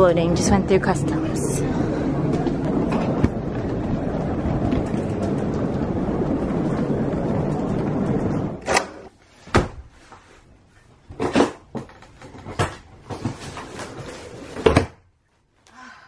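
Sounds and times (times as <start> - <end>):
trolley wheels rolling on tiles: 0.0 - 14.8.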